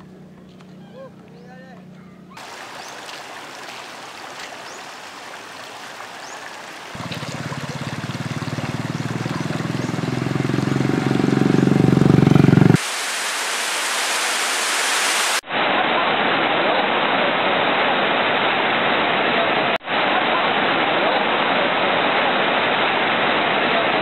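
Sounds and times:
river water rushing over rocks: 0:02.4 - 0:11.5.

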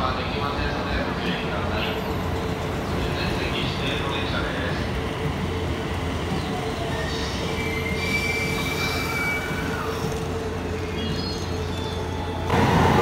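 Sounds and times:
electric train humming: 0:00.0 - 0:13.0
high-pitched wheel squeals: 0:06.8 - 0:12.4.

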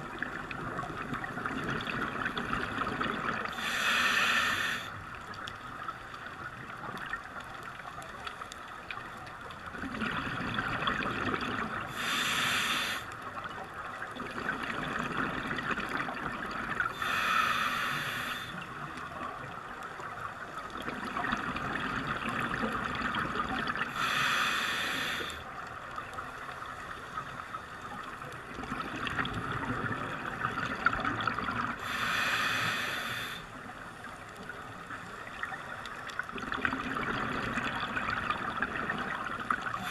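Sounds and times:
exhaled air bubbling: 0:00.0 - 0:05.8, 0:09.0 - 0:39.9
regulator inhale hisses: 0:03.5 - 0:05.0, 0:11.9 - 0:13.2, 0:16.9 - 0:18.6, 0:23.9 - 0:25.5, 0:31.8 - 0:33.5.

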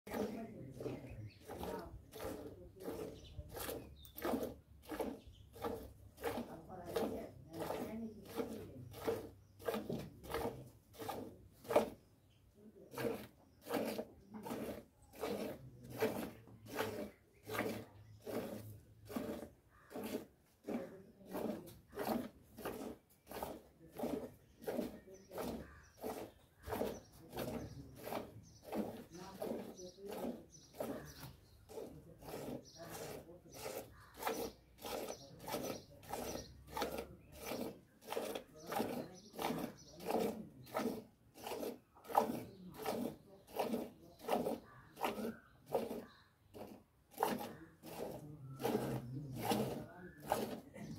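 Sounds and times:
milk squirting into steel pail: 0:00.1 - 0:50.9.

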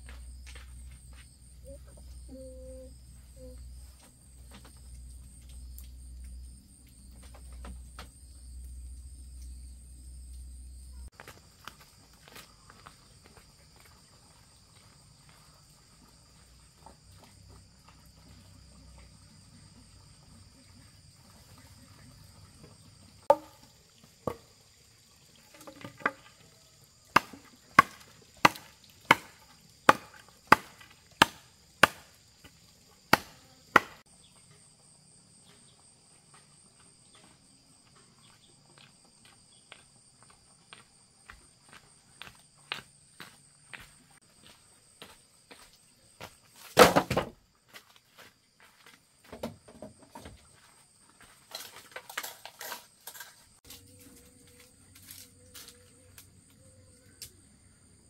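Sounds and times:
insects buzzing: 0:00.0 - 0:46.7, 0:47.5 - 0:58.0
footsteps on stony ground: 0:11.1 - 0:15.5, 0:47.6 - 0:49.3
blade chopping wood: 0:27.1 - 0:34.0, 0:46.7 - 0:47.3.

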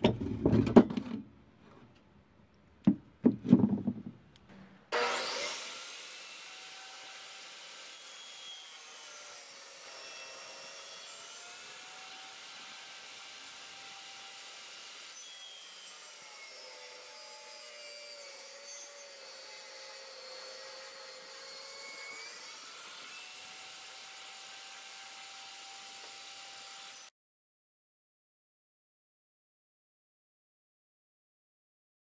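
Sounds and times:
saw blade cutting wood: 0:04.5 - 0:27.1
table saw motor whine: 0:04.9 - 0:27.1.

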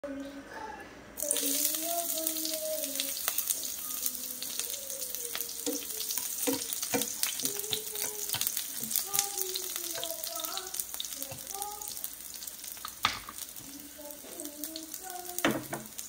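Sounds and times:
shallots sizzling in hot oil: 0:01.2 - 0:16.0
spatula stirring: 0:01.2 - 0:16.0
crackles and pops: 0:02.4 - 0:13.6.

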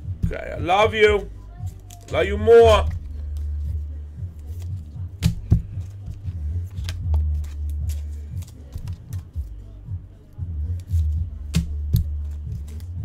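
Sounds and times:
music with heavy bass beat: 0:03.8 - 0:13.0
trading cards clicking and snapping: 0:04.4 - 0:09.5, 0:10.7 - 0:13.0.

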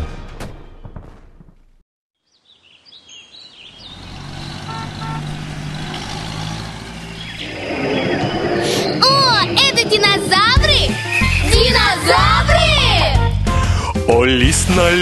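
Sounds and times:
cartoon birds chirping: 0:02.4 - 0:12.4
bus engine running: 0:03.6 - 0:13.8.

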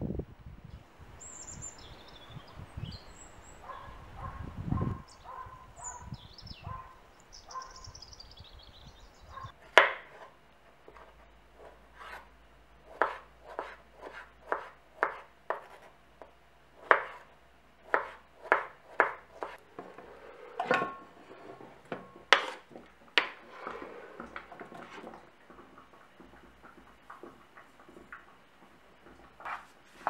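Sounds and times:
scraping across cutting board: 0:10.0 - 0:16.0, 0:16.8 - 0:25.8, 0:29.2 - 0:30.0
knife tapping on cutting board: 0:17.9 - 0:19.6.

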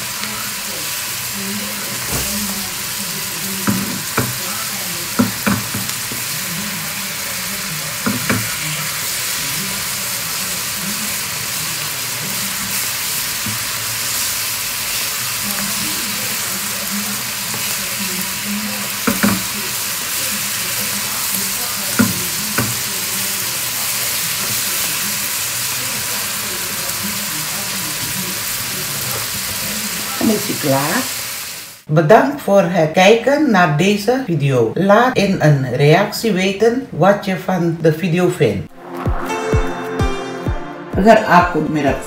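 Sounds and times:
spinach sizzling in a frying pan: 0:00.0 - 0:31.9
spatula knocking against pan: 0:03.6 - 0:04.4, 0:05.2 - 0:06.2, 0:08.0 - 0:08.5, 0:19.0 - 0:19.5, 0:22.0 - 0:22.8.

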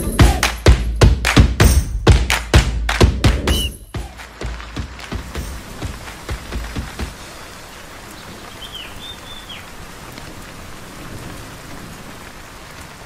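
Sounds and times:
whistled bird call: 0:03.5 - 0:03.9, 0:08.2 - 0:09.7
rain falling on leaves: 0:04.0 - 0:13.0.

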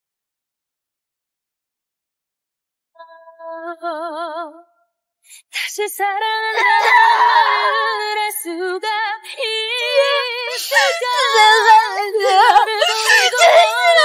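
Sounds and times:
woman singing ballad: 0:03.0 - 0:04.7, 0:05.5 - 0:14.0
woman crying out: 0:06.5 - 0:07.7, 0:10.0 - 0:14.0.

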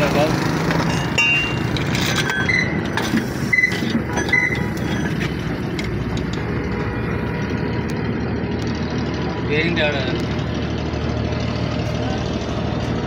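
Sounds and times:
vehicle engine running: 0:00.0 - 0:13.0
short high squeaks: 0:01.6 - 0:05.3.

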